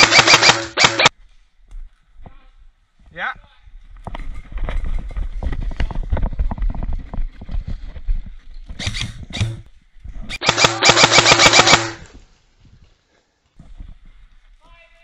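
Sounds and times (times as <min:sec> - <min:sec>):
airsoft rifle automatic burst: 0:00.0 - 0:01.1, 0:10.3 - 0:12.0.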